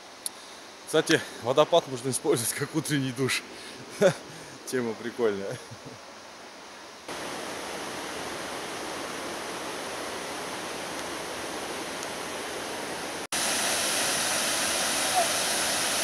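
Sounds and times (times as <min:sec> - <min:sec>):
waterfall rushing: 0:07.1 - 0:16.0.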